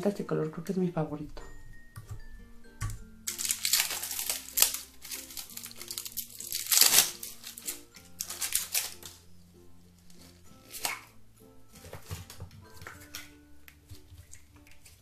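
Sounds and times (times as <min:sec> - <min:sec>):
upbeat background music: 0:00.0 - 0:15.0
plastic film crinkling: 0:03.2 - 0:09.3, 0:09.9 - 0:11.2.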